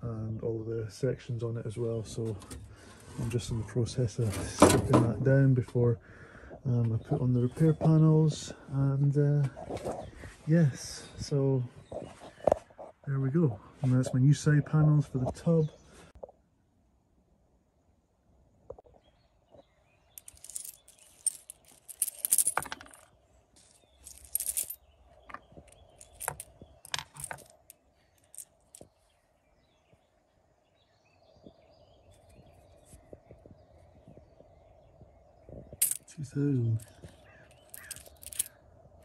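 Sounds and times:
coins clinking: 0:20.2 - 0:23.0, 0:24.0 - 0:24.8, 0:25.7 - 0:28.8, 0:35.8 - 0:36.1, 0:36.8 - 0:38.5.

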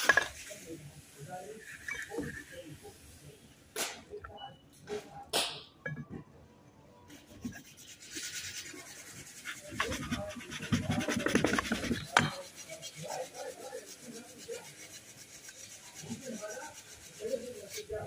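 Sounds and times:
metal parts scraping: 0:00.0 - 0:00.6.

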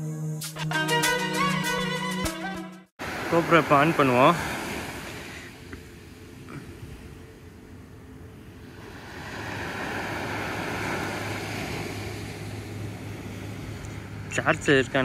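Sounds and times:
sea waves washing on beach: 0:03.0 - 0:07.3, 0:08.3 - 0:15.0.

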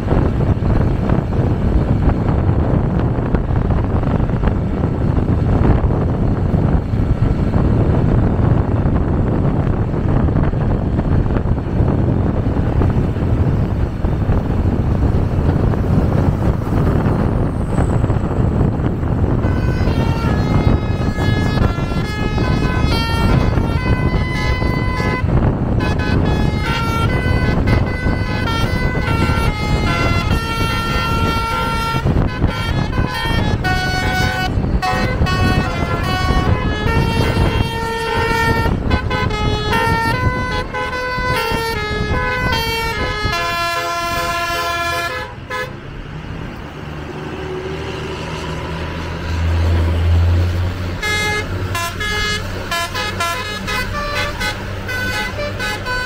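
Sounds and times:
bus engine drone: 0:00.0 - 0:56.0
bus musical horn tune: 0:19.1 - 0:45.8, 0:50.9 - 0:56.0.

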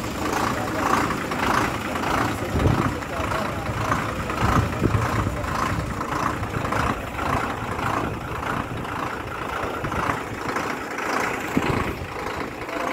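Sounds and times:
diesel engine idling: 0:00.0 - 0:12.9.

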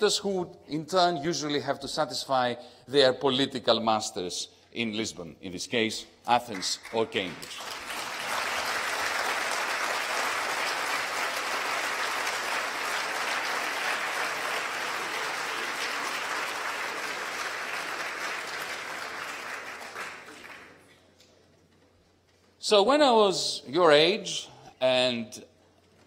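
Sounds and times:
audience applauding: 0:06.5 - 0:21.0.

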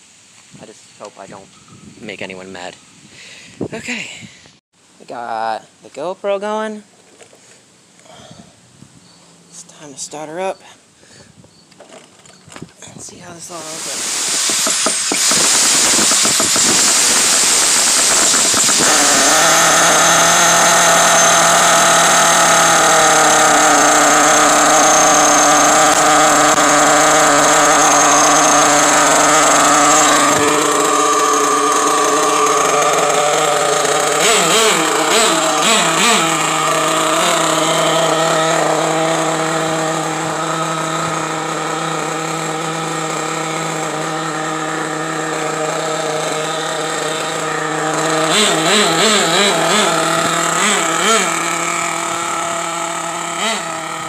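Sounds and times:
small nitro engine running: 0:13.4 - 0:54.0.

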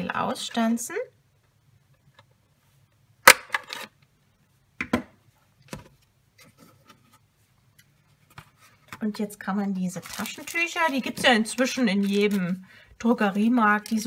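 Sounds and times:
paper handling: 0:09.9 - 0:12.6.

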